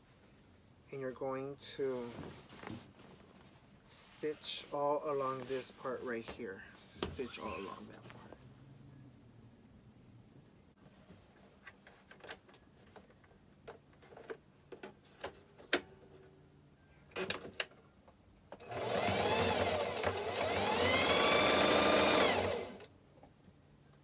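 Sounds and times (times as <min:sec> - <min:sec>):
sewing machine motor running: 0:18.6 - 0:22.9.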